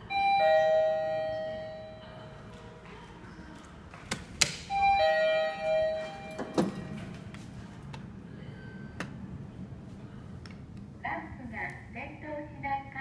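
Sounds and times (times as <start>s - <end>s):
elevator arrival chime: 0.0s - 2.6s, 4.7s - 7.2s
elevator clicks: 4.1s - 7.2s.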